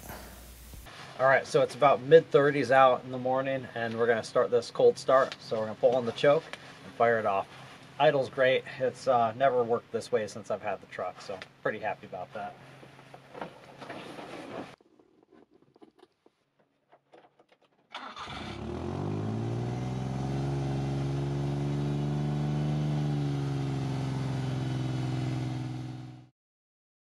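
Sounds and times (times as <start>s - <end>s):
engine starting and idling: 17.9s - 19.5s.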